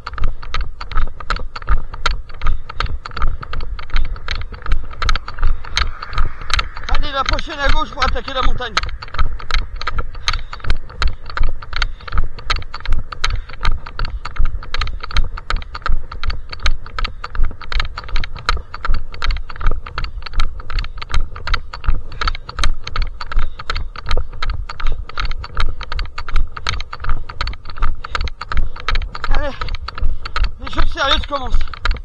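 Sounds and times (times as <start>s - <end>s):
footsteps crunching on path: 0.0s - 32.0s
low rumble: 1.7s - 13.1s.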